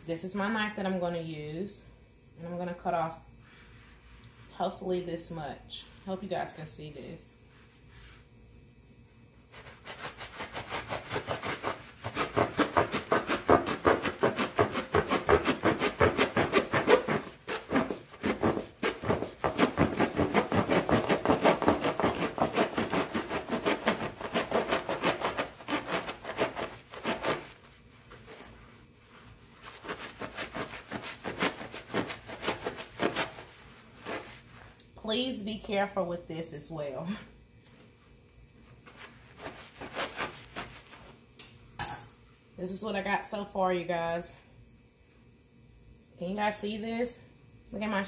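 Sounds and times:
knife sawing through paper towels: 0:09.6 - 0:27.6, 0:29.6 - 0:34.6, 0:39.2 - 0:41.0.

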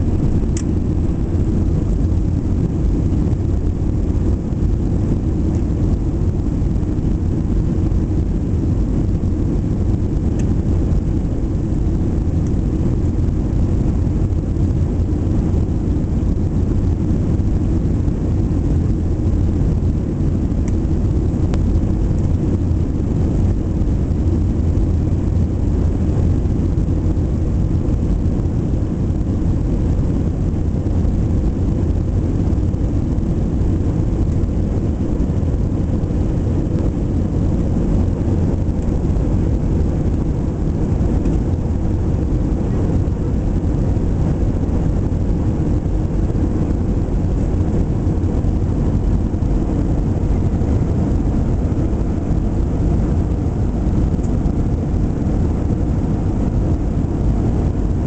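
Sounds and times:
airliner cabin drone: 0:00.0 - 0:58.0.

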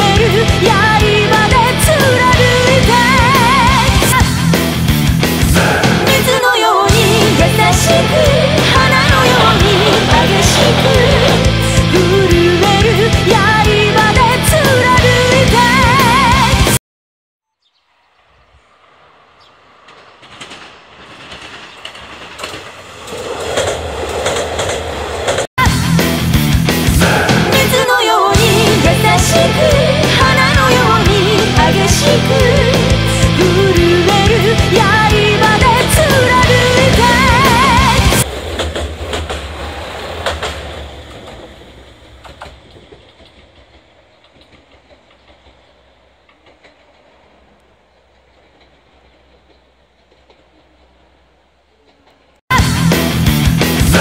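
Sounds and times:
wheels clicking over rail joints: 0:00.0 - 0:14.6, 0:18.7 - 0:25.5, 0:27.6 - 0:52.4
diesel railcar approaching: 0:00.0 - 0:16.8, 0:17.6 - 0:54.0
wheel clicks over rail joints: 0:19.7 - 0:25.5, 0:36.7 - 0:52.4.

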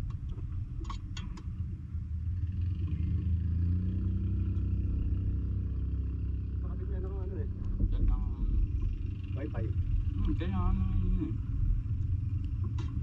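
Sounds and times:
distant motor engine droning: 0:00.0 - 0:13.0
low rumble: 0:00.0 - 0:13.0.

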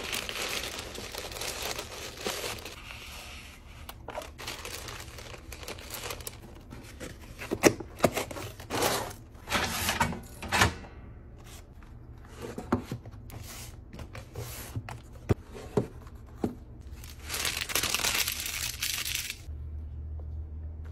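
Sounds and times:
tissue paper crinkling: 0:00.0 - 0:03.1, 0:04.1 - 0:06.4, 0:16.9 - 0:19.5.

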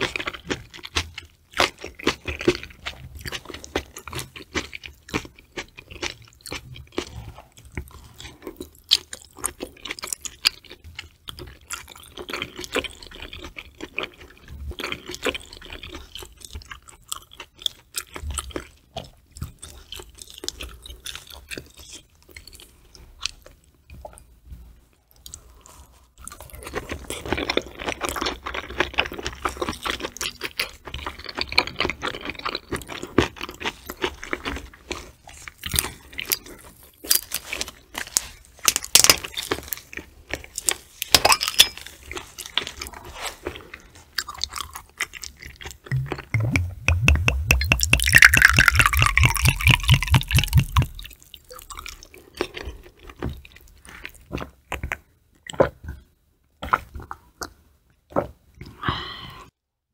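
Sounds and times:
wet chewing: 0:43.5 - 0:55.7.

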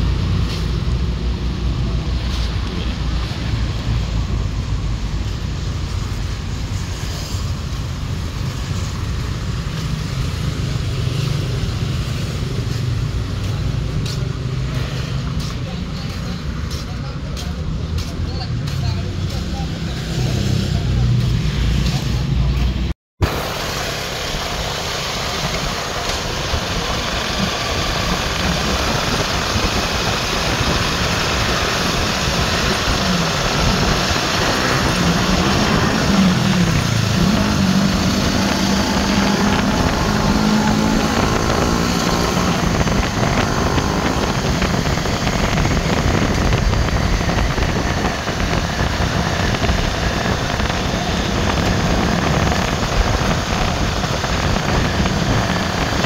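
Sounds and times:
motorcycle engine: 0:00.0 - 0:56.0
wind noise: 0:23.2 - 0:56.0.

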